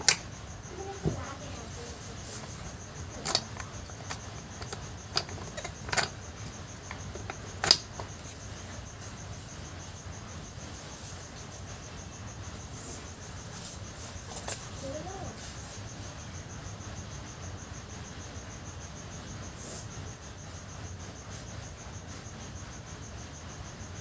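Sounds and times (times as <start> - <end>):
plastic parts clicking on table: 0.0 - 0.3, 3.1 - 8.3.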